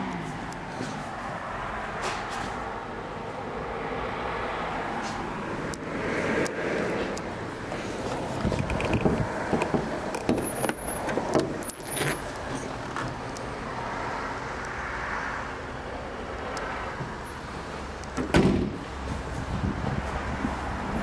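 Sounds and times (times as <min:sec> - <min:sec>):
car bonnet shutting thud: 0:18.2 - 0:18.8.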